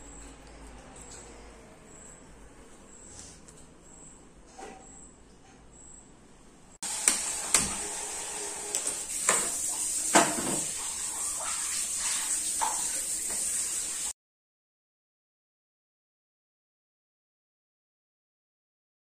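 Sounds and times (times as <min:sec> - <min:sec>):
gas burner hissing: 0:06.8 - 0:14.1.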